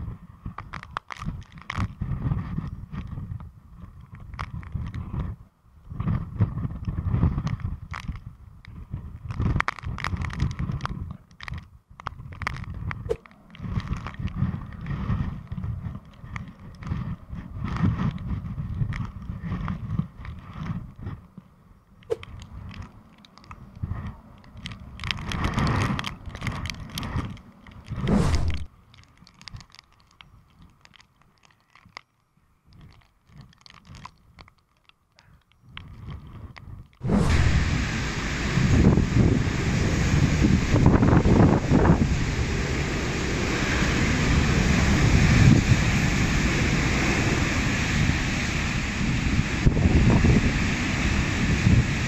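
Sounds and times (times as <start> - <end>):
wind buffeting microphone: 0.0 - 28.8, 35.6 - 52.0
raindrops ticking on camera: 22.0 - 37.0
rain hiss: 24.2 - 28.7, 37.0 - 52.0.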